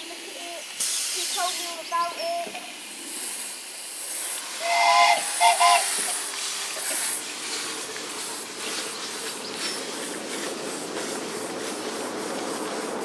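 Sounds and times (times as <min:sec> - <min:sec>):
steam locomotive hissing: 0:00.0 - 0:13.0
train running along track: 0:00.0 - 0:13.0
train whistle toots: 0:04.6 - 0:06.1.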